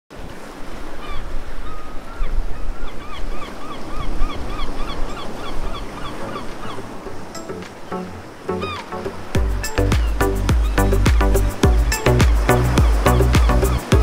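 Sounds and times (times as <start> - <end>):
waves washing with low rumble: 2.4 - 14.0
gull calling: 3.0 - 14.0.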